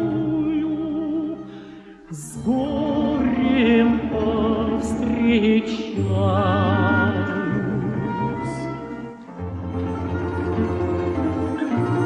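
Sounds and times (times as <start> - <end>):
man singing operatically: 2.1 - 8.8
orchestral accompaniment: 2.1 - 12.0.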